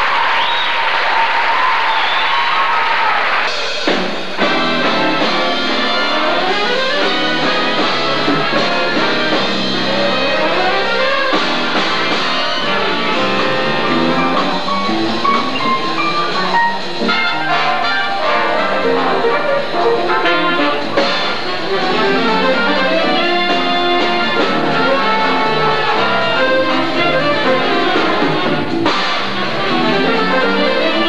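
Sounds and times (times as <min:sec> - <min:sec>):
applause: 0:00.0 - 0:03.5
big band playing jazz: 0:03.3 - 0:31.0.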